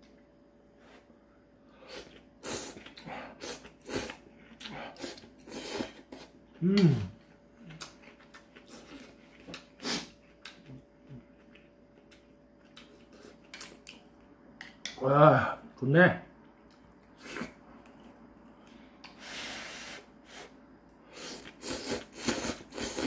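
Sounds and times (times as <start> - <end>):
man grunting: 6.6 - 7.1
man slurping noodles: 21.2 - 23.0.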